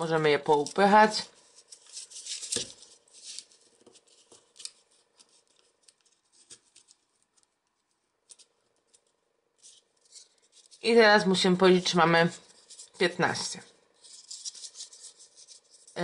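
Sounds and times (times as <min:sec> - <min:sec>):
folded paper rustling and clicking: 0:00.1 - 0:10.8.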